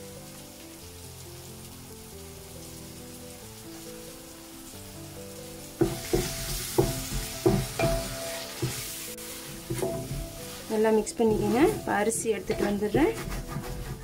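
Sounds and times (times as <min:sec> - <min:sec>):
loud sizzle in hot oil: 0:00.0 - 0:14.0
soft background music: 0:00.0 - 0:14.0
spoon knocking and scraping: 0:05.8 - 0:08.8, 0:09.7 - 0:10.5, 0:11.2 - 0:14.0.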